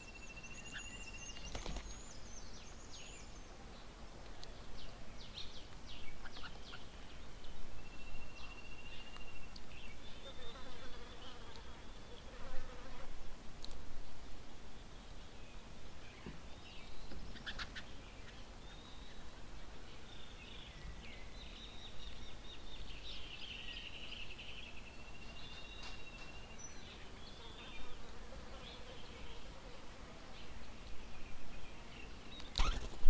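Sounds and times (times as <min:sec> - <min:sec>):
birds calling and chattering: 0:00.0 - 0:12.8, 0:14.7 - 0:33.0.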